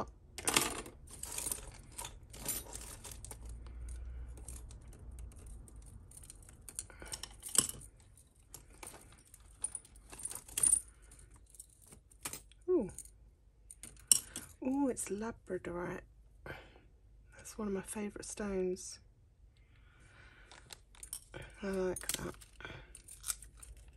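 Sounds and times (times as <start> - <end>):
metal bangles jangling: 0.5 - 13.1, 20.9 - 23.9.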